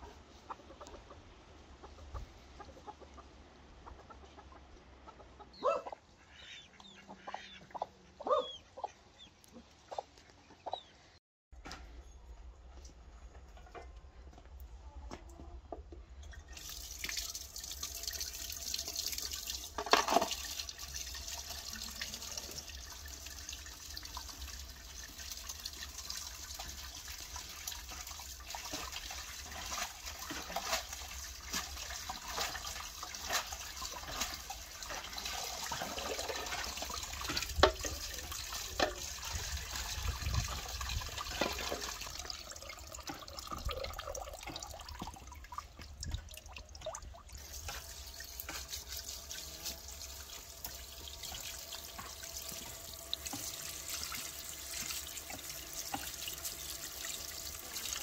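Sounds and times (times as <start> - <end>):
water running into basin: 16.2 - 58.0
splashing while rinsing greens: 16.5 - 58.0.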